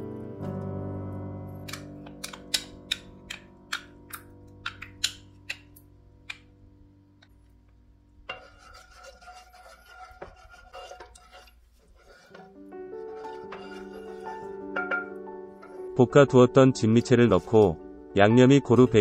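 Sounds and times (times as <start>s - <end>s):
spoon stirring glaze in pan: 8.2s - 19.0s
wooden spoon scraping ceramic cup: 8.3s - 15.0s, 15.6s - 16.1s.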